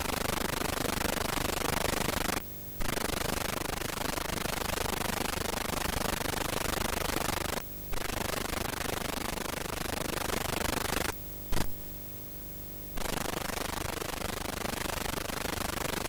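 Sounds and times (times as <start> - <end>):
faint hum: 2.4 - 3.9, 7.6 - 14.4
videotape hiss: 5.7 - 16.0.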